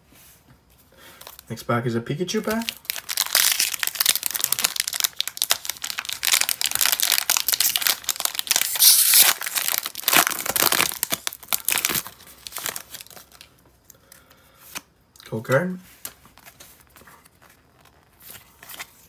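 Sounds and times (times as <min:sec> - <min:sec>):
foil wrapper crinkling and tearing: 0:02.5 - 0:14.0.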